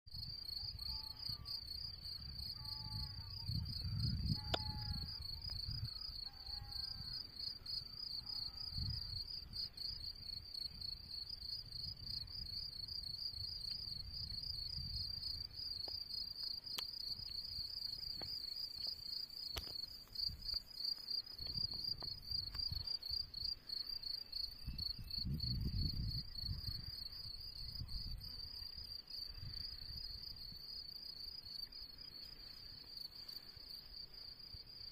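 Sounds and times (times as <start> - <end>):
wind rumble on microphone: 0.2 - 16.0, 21.4 - 23.5, 24.4 - 30.6
crickets chirring: 0.2 - 34.9.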